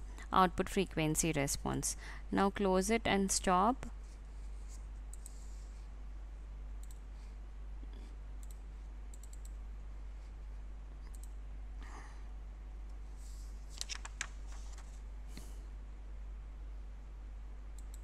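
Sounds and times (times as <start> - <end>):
steady low hum: 0.0 - 18.0
computer mouse clicks: 5.1 - 5.4, 6.8 - 7.0, 8.4 - 9.6, 11.0 - 11.4, 17.8 - 18.0.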